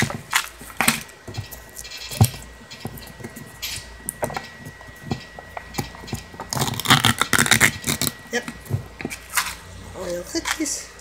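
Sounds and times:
foil lid peeling: 6.4 - 9.6
foil crinkle: 6.5 - 9.6.

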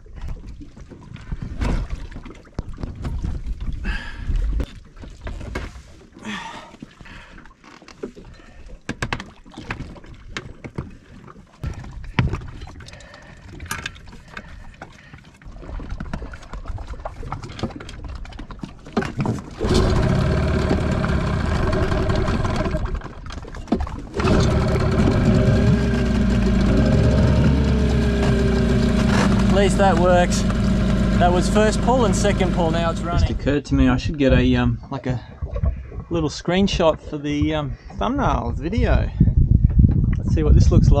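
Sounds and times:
outboard motor running: 10.9 - 33.6
outboard motor pull-starting: 11.6 - 15.2, 17.2 - 33.5.

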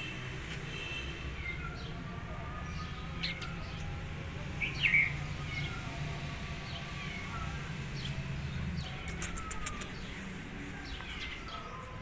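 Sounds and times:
small birds chirping: 1.2 - 12.0
thin high clicks: 9.0 - 10.0.

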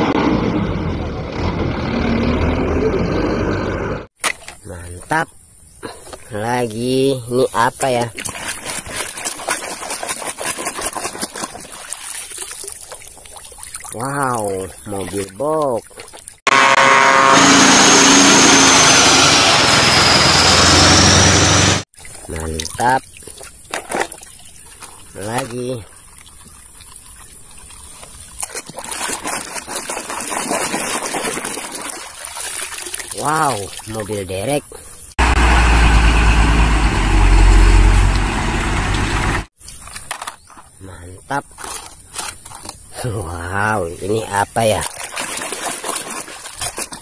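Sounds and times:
muddy water splashing: 6.4 - 16.4, 21.9 - 40.5, 41.3 - 47.0.

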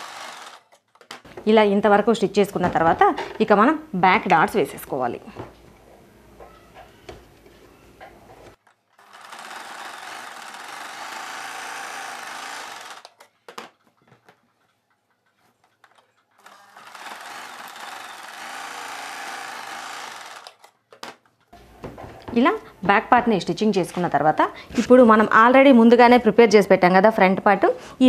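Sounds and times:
sewing machine stitching: 0.0 - 0.9, 9.0 - 13.3, 15.4 - 20.8.

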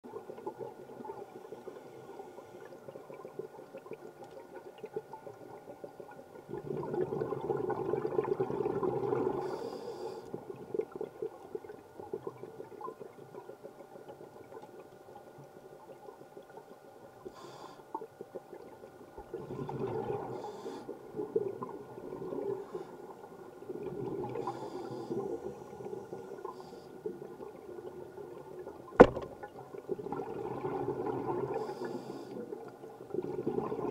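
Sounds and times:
faint steady hum: 0.0 - 33.9
exhaled bubbles rushing underwater: 0.1 - 9.6, 18.6 - 33.9
quiet scuba breathing: 0.1 - 28.8, 29.7 - 33.9.

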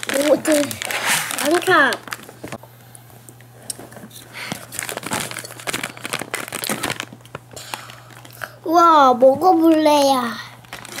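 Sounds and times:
plastic pouch crinkling: 0.0 - 2.6, 4.5 - 8.4, 10.6 - 11.0.

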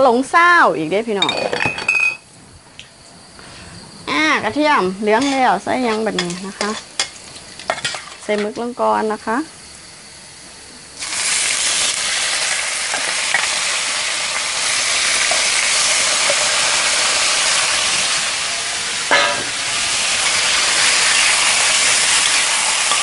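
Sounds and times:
food sizzling in oil: 4.1 - 23.0
oil popping and crackling: 6.2 - 8.3, 11.0 - 18.4, 19.0 - 23.0.

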